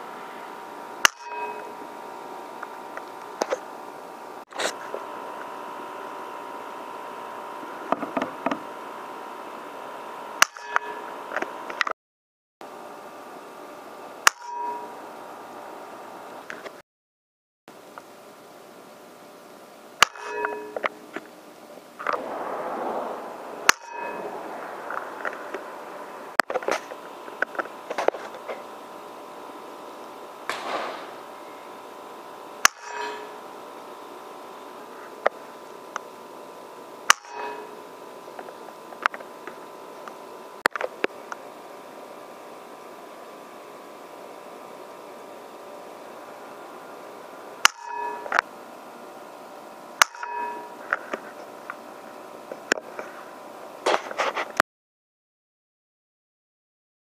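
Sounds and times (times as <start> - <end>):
sharp knock: 30.5 - 31.2
air rifle firing: 30.5 - 31.3.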